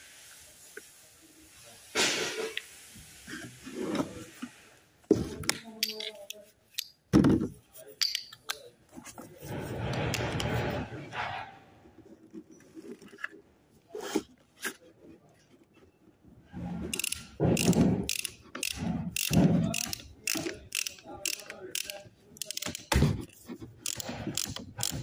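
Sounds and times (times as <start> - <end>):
tools clicking on metal parts: 5.5 - 7.0, 8.0 - 8.7, 16.9 - 23.0, 23.8 - 25.0.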